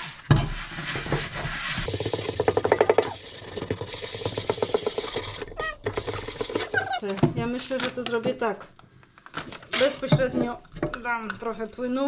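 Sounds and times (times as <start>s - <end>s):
sponge scrubbing a frying pan: 0.0s - 7.0s.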